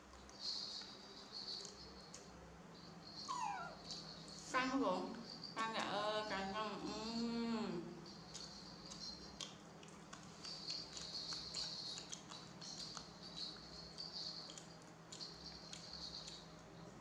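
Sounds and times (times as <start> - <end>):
thin high background sound: 0.0 - 17.0
monkey crunching snack: 8.3 - 16.4.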